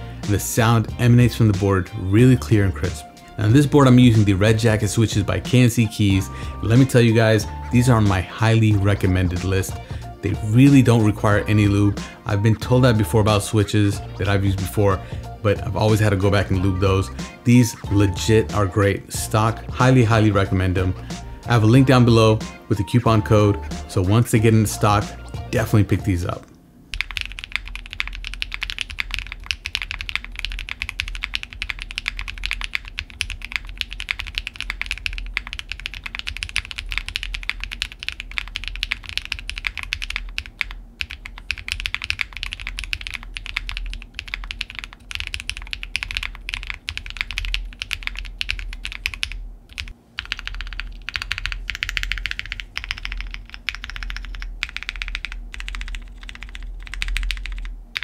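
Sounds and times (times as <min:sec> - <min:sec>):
mechanical keyboard typing: 0:27.0 - 0:58.0.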